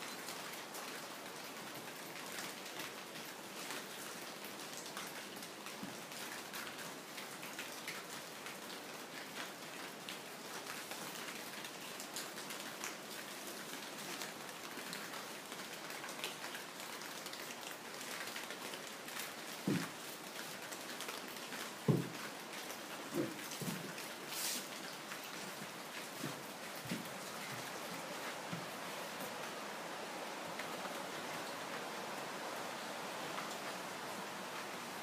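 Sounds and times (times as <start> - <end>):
rain pattering: 0.0 - 35.0
water dripping through ceiling: 0.0 - 35.0.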